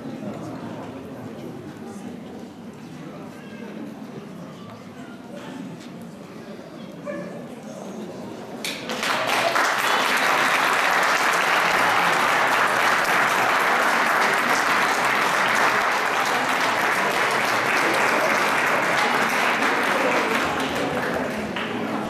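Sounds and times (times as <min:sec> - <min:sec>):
audience applauding: 0:08.6 - 0:22.0.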